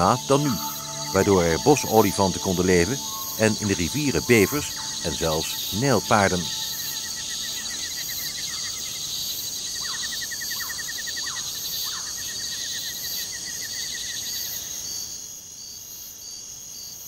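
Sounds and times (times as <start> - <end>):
short lower chirps: 0.0 - 8.0
slow evenly repeated chirp: 0.0 - 12.2
insect fast pulsing chirp: 0.0 - 17.0
insects chirping in steady trills: 0.0 - 17.0.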